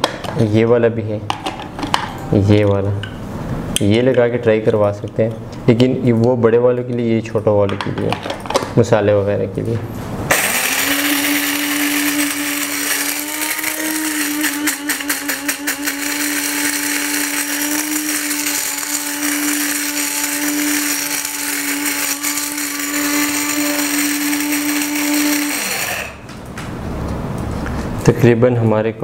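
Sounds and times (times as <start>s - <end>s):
coffee grinder motor running: 10.3s - 26.3s.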